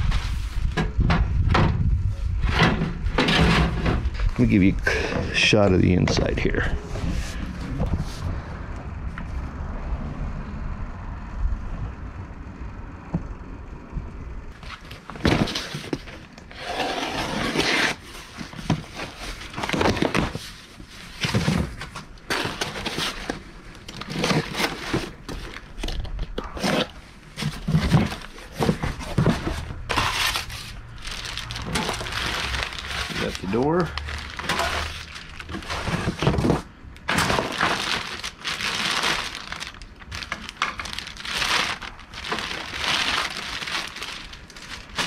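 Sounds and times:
handling scrapes and knocks: 0.0s - 8.3s, 14.6s - 45.0s
low steady rumble: 0.0s - 14.7s.

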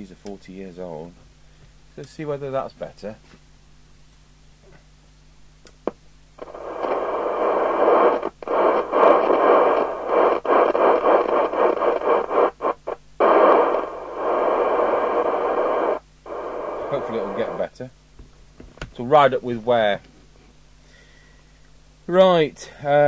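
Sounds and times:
radio receiver hiss: 5.8s - 18.0s, 18.8s - 23.0s.

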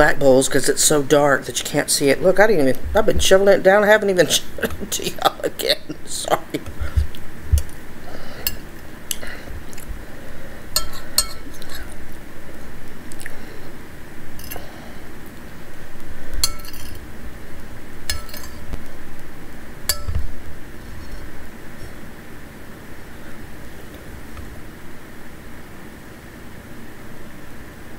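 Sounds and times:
person chewing: 8.5s - 10.0s, 13.1s - 13.4s
metal spoon clinking on bowl: 10.8s - 11.5s, 16.4s - 17.0s, 18.1s - 18.6s, 19.9s - 20.2s.

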